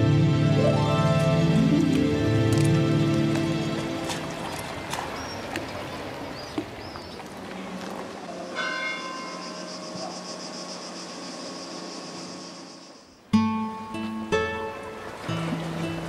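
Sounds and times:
church bell ringing: 0:08.5 - 0:09.7.

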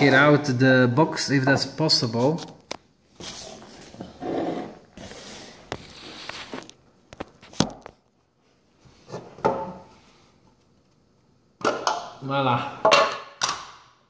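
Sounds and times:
plastic case rustling and sliding: 0:03.2 - 0:07.9.

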